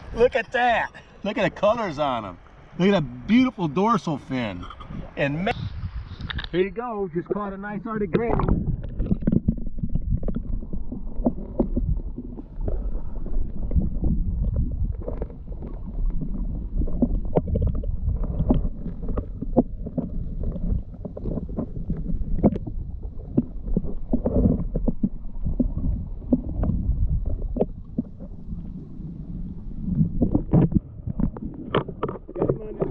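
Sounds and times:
muffled underwater rumble: 0:00.0 - 0:32.9.

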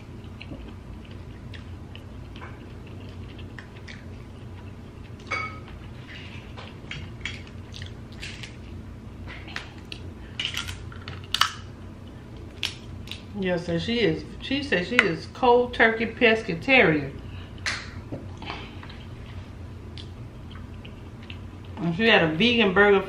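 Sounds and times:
crab shell cracking: 0:09.8 - 0:11.7, 0:12.5 - 0:13.3.

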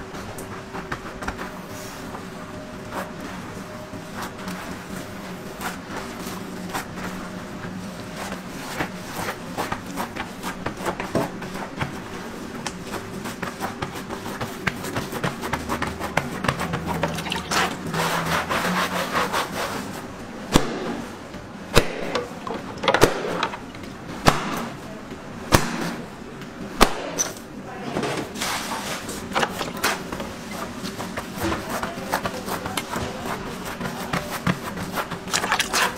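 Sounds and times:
dough slapping and crackling: 0:00.2 - 0:01.7, 0:04.1 - 0:23.6, 0:28.5 - 0:35.9.

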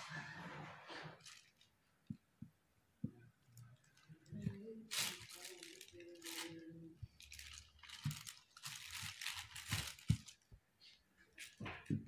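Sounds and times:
plastic sheet crinkling: 0:00.1 - 0:01.9, 0:03.5 - 0:10.5.

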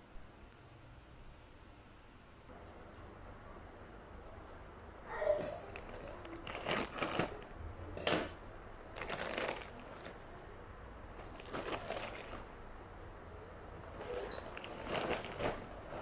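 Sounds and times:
plastic mailer bag crinkling: 0:05.7 - 0:07.4, 0:08.9 - 0:10.2, 0:11.2 - 0:12.6, 0:14.0 - 0:16.0.

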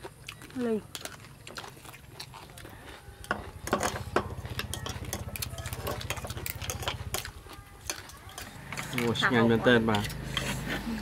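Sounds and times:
chopsticks and spoons on plates: 0:00.0 - 0:11.0.

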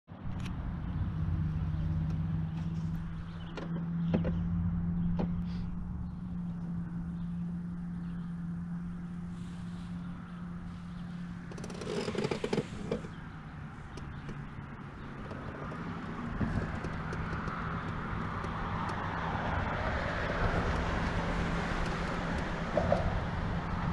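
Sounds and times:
boat motor humming: 0:00.1 - 0:23.9
clatter and scraping: 0:01.5 - 0:05.7, 0:09.4 - 0:23.9.

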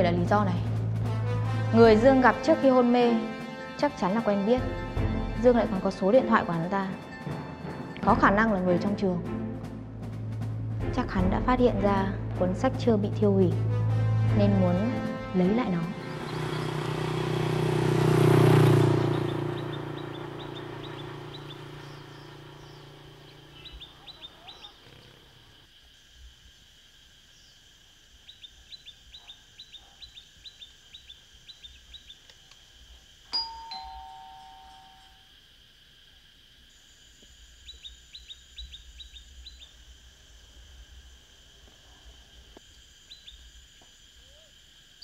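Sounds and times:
birds chirping: 0:14.8 - 0:25.6, 0:28.2 - 0:32.4, 0:37.6 - 0:39.8, 0:42.4 - 0:43.4
two-tone doorbell chime: 0:33.4 - 0:35.2.

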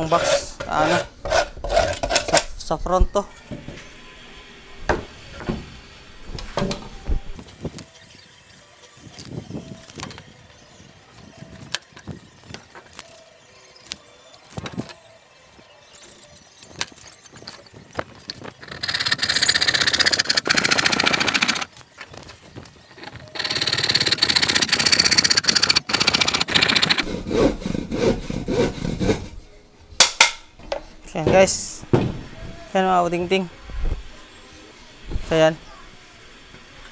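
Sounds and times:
hand saw cutting plywood: 0:00.0 - 0:02.3, 0:23.3 - 0:29.4.

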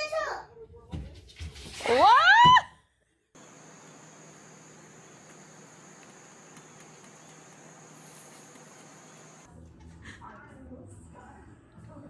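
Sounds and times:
background hiss: 0:03.4 - 0:09.5
insect chorus: 0:03.4 - 0:09.5.

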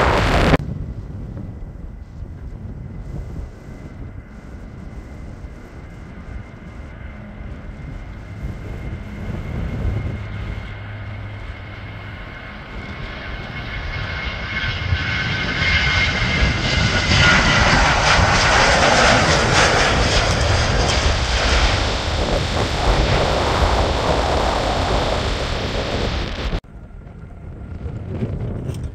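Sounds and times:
jet airliner taking off: 0:00.0 - 0:28.9.

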